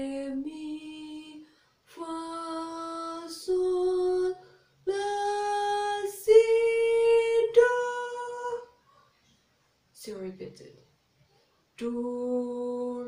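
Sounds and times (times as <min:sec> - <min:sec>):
woman singing scale: 0:00.0 - 0:08.8, 0:11.8 - 0:13.0.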